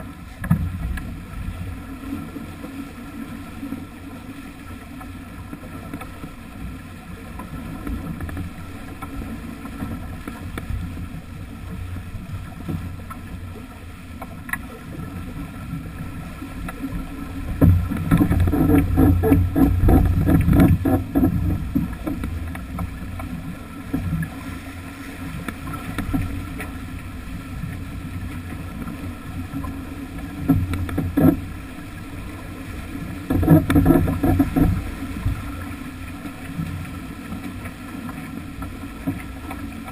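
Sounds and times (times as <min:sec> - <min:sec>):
bow wave splashing along hull: 0:00.0 - 0:39.9
wind on microphone: 0:17.2 - 0:26.5.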